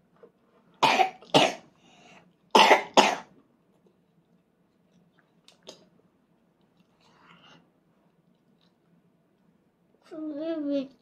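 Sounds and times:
toddler coughing: 0:00.8 - 0:01.6, 0:02.6 - 0:03.3.

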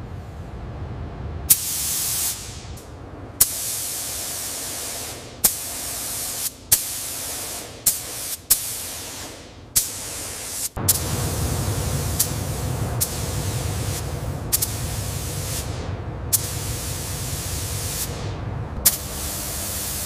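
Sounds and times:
spray gun hissing: 0:01.5 - 0:02.7, 0:03.4 - 0:20.0.

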